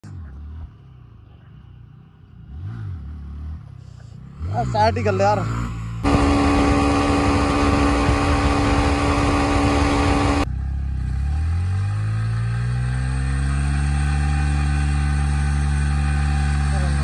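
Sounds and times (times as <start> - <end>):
engine revving up: 2.4 - 17.0
motorcycle engine running: 4.2 - 17.0
rushing air noise: 6.0 - 10.5.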